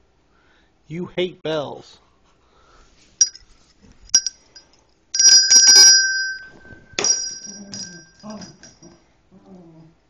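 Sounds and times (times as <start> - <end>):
small bell ringing: 3.2 - 3.4, 4.1 - 9.0.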